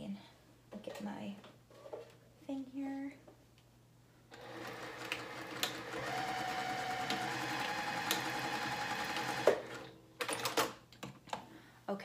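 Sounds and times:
sewing machine stitching fabric: 4.4 - 10.7.

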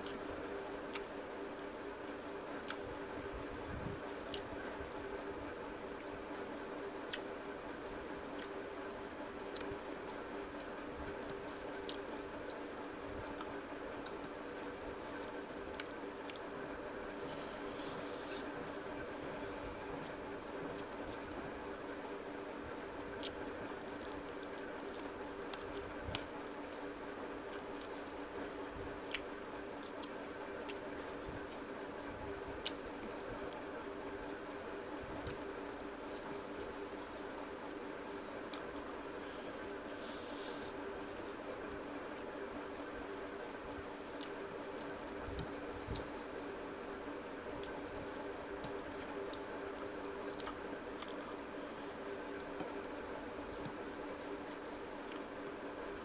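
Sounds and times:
fingers squishing rice and curry: 0.0 - 56.0
steady low hum: 0.0 - 56.0
chewing: 4.2 - 4.9, 9.4 - 16.5, 23.0 - 26.3, 29.1 - 30.9, 32.6 - 33.6, 43.4 - 46.6, 47.5 - 56.0.

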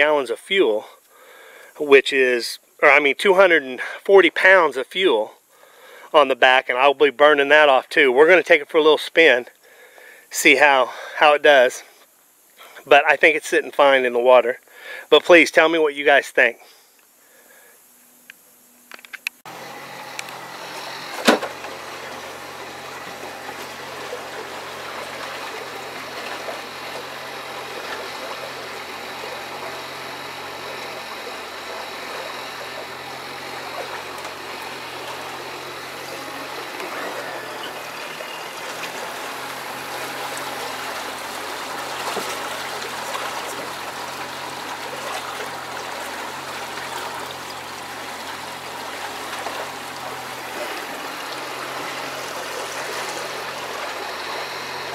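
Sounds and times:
outboard motor humming: 0.0 - 11.7, 17.1 - 54.9
water rushing along hull: 19.5 - 54.9.

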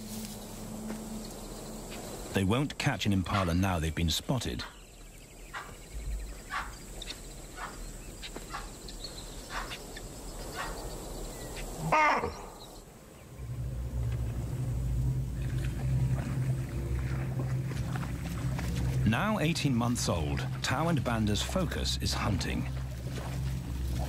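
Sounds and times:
baboon alarm calls: 6.4 - 8.8
low steady hum: 10.9 - 24.0.

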